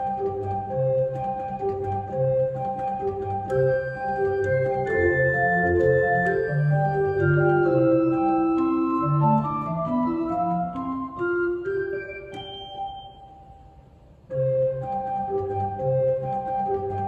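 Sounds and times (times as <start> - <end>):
pipe organ chords: 0.0 - 13.4.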